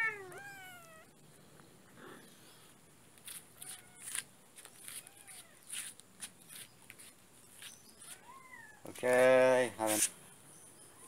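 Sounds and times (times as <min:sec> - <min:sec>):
faint kitten cries: 0:00.0 - 0:01.2, 0:03.6 - 0:05.7, 0:08.0 - 0:08.9.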